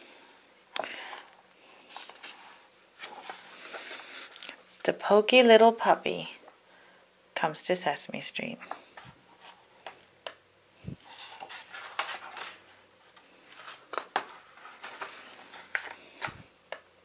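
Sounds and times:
book pages rustling: 0:01.0 - 0:04.6, 0:08.9 - 0:10.0, 0:11.0 - 0:16.5.

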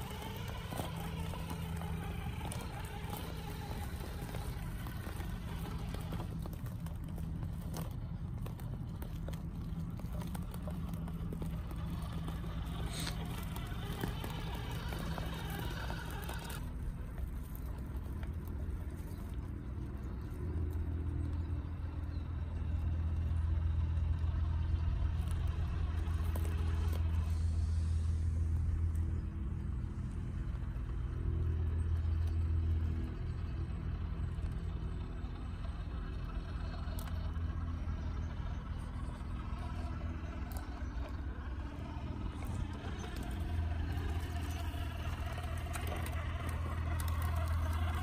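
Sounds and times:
toy truck electric motor droning: 0:00.0 - 0:48.0.

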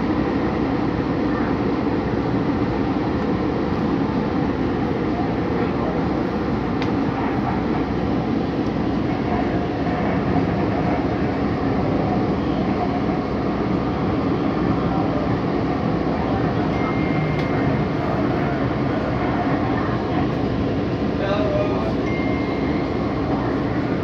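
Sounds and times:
train wheels rumbling on rail: 0:00.0 - 0:24.0
brief high tone: 0:16.7 - 0:17.6, 0:22.0 - 0:23.1.

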